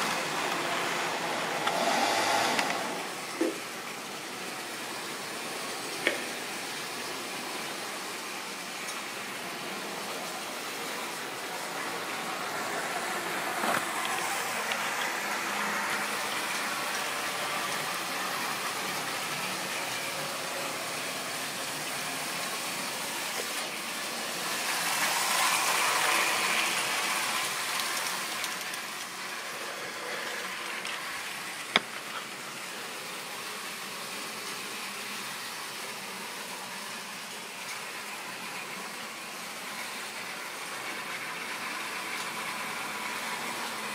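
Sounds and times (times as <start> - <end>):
model train motor whirring: 0.0 - 3.5, 11.8 - 35.5.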